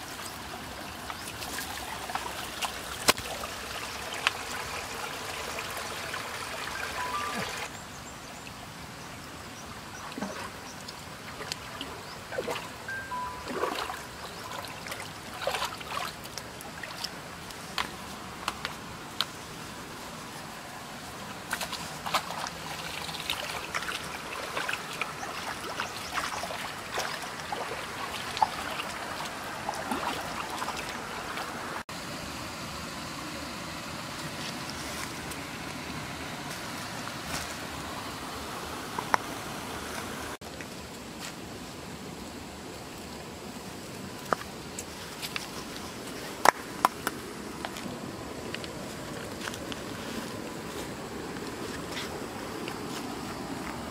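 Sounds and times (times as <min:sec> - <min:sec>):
stream water trickling: 0:00.0 - 0:53.9
feet splashing through water: 0:10.0 - 0:12.8, 0:13.4 - 0:18.1, 0:21.3 - 0:31.8.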